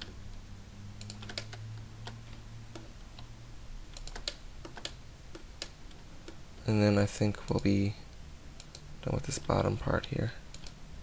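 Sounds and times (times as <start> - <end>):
steady low hum: 0.0 - 11.0
keyboard and mouse clicking: 1.0 - 3.3, 3.9 - 6.4, 8.6 - 10.8.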